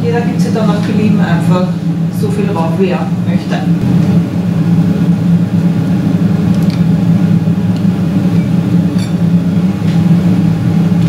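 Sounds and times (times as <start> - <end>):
kitchen appliance humming: 0.0 - 11.0.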